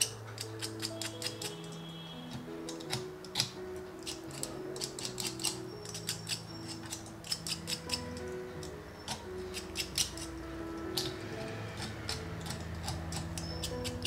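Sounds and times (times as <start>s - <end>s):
wire clicks and snips: 0.0s - 8.0s
soft background music: 0.0s - 14.0s.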